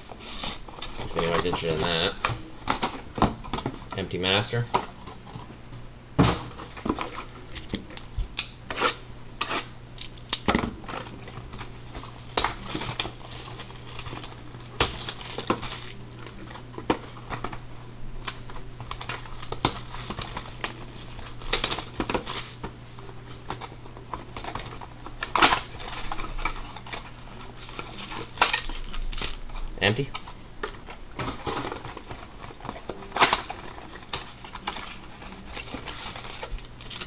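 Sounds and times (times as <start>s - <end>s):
plastic wrap crinkling: 0.0s - 5.4s, 10.0s - 17.6s, 18.2s - 22.6s, 23.5s - 37.0s
steady low hum: 0.0s - 37.0s
cardboard rustling: 10.8s - 17.6s, 23.5s - 29.4s, 30.1s - 37.0s.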